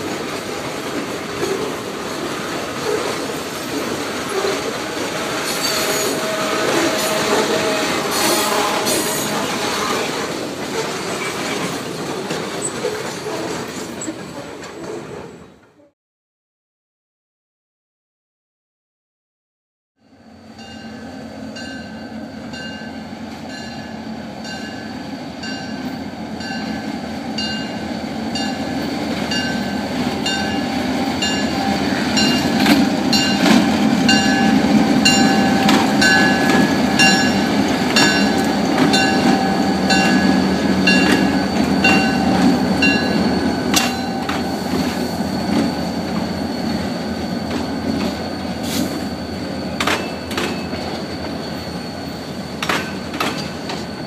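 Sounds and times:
wheels clanking over rail joints: 0.0s - 15.6s, 26.4s - 51.5s, 52.4s - 54.0s
diesel locomotive engine rumble: 0.0s - 15.9s, 20.1s - 54.0s
locomotive bell ringing: 3.2s - 9.5s, 20.0s - 54.0s.

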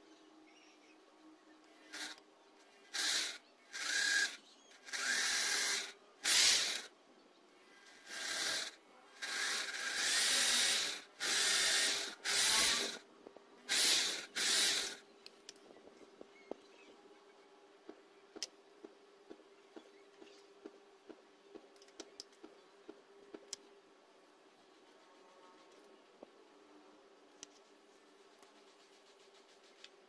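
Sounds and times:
electric drill bursts: 1.9s - 2.2s, 2.9s - 6.9s, 7.9s - 13.0s, 13.7s - 15.0s.

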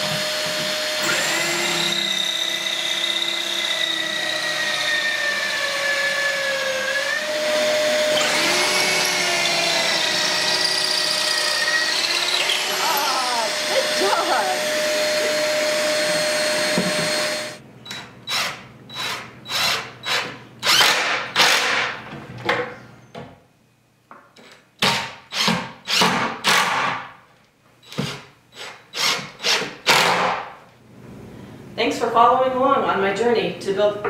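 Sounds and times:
corded drill whining: 0.0s - 21.6s
cordless drill driving screws: 0.0s - 21.8s, 27.8s - 30.3s.

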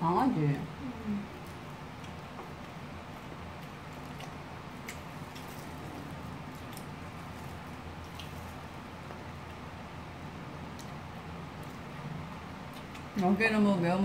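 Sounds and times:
steady low hum: 0.0s - 14.0s
soft chewing: 0.7s - 10.0s, 10.6s - 13.3s.

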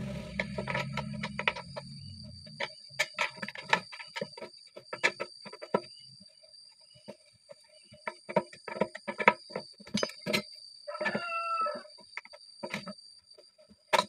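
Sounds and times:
wrenches clinking and scraping on metal: 8.0s - 10.6s
rooster crowing: 10.9s - 12.0s.

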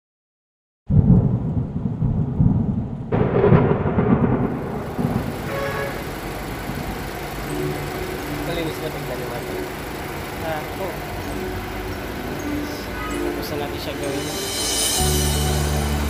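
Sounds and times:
thunder crack: 0.9s - 7.2s
thunder rumbling: 0.9s - 9.2s.

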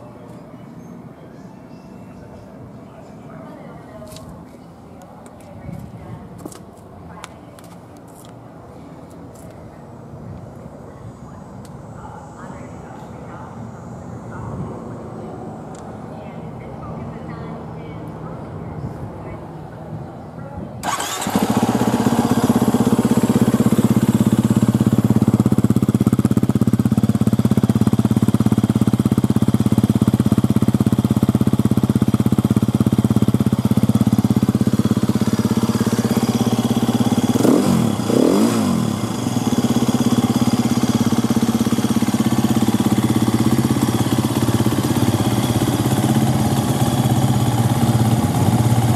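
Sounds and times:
motorcycle engine idling and revving: 20.8s - 48.9s.

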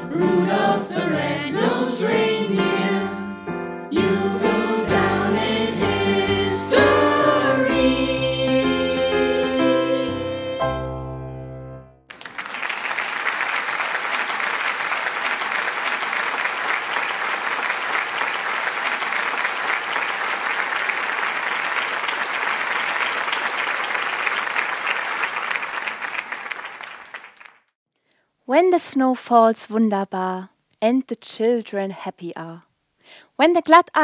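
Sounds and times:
choir singing a chord: 0.0s - 11.1s
audience applause: 12.1s - 27.7s.

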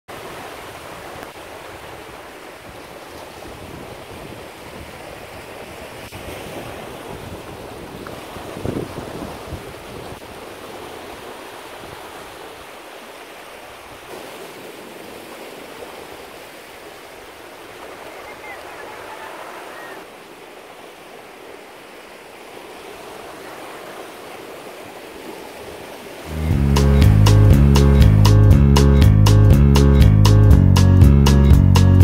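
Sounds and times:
surf washing over rocks: 0.1s - 28.3s
wave splash: 0.1s - 30.1s
wind on microphone: 1.7s - 12.3s.

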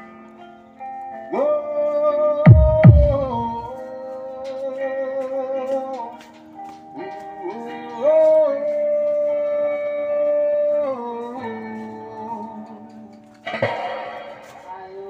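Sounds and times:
music with long held notes: 0.0s - 4.7s
heavy low thump: 2.5s - 3.6s, 13.5s - 15.0s.

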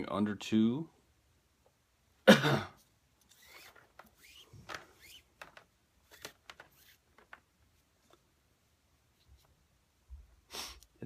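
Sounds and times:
cord rustling and squeaking: 2.8s - 8.3s, 9.1s - 9.7s.

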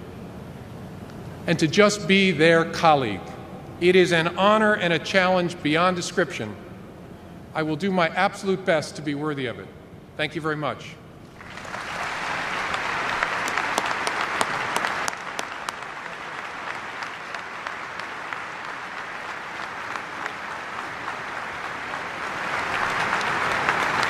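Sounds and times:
large audience applauding: 11.3s - 24.0s
single sharp claps: 11.6s - 24.0s.

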